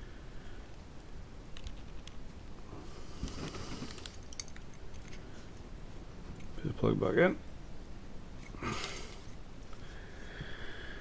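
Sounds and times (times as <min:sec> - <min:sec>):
soft rustling of wires: 0:00.4 - 0:10.6.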